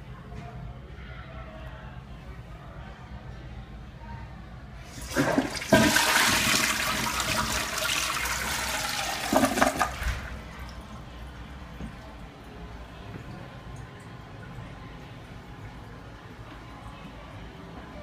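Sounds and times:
toilet flushing: 0:04.8 - 0:12.2
water gurgling: 0:05.0 - 0:11.4.

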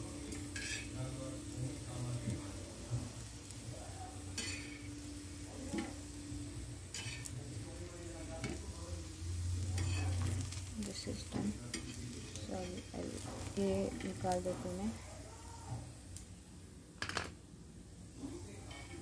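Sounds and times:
cookies sizzling in a pan: 0:00.0 - 0:19.0
spatula scraping a pan: 0:00.3 - 0:01.1, 0:04.4 - 0:05.0, 0:06.8 - 0:07.5, 0:09.6 - 0:10.6, 0:11.2 - 0:15.0, 0:18.6 - 0:19.0.

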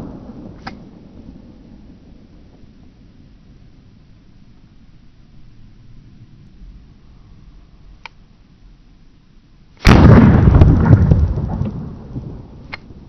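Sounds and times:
faint click: 0:08.0 - 0:08.2.

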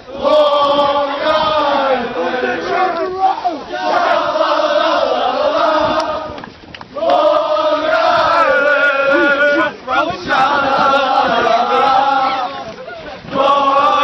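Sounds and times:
crowd chanting in unison: 0:00.0 - 0:14.0.

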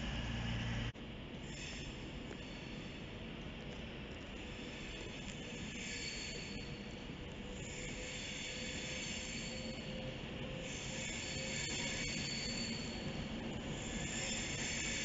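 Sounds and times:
train rolling noise: 0:00.0 - 0:15.0
train wheels squealing: 0:01.4 - 0:03.3, 0:04.4 - 0:15.0.

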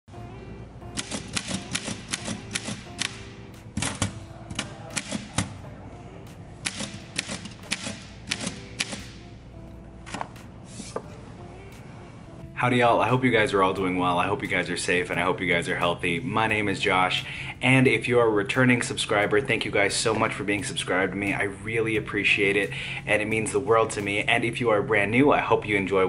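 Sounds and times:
soft background music: 0:00.1 - 0:26.0
typewriter keys clicking: 0:01.0 - 0:03.2, 0:06.6 - 0:09.1.

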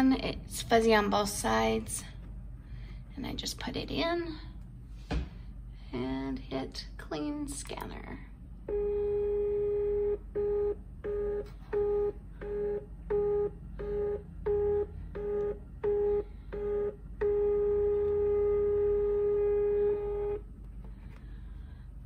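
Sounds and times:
scanner feed motor whine: 0:08.6 - 0:20.5.

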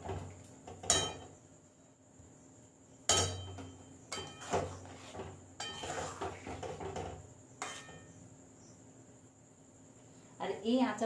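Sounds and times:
spatula clinking on metal pan: 0:00.8 - 0:01.3, 0:03.1 - 0:04.5, 0:05.6 - 0:06.0
spatula scraping and stirring: 0:04.1 - 0:08.2.

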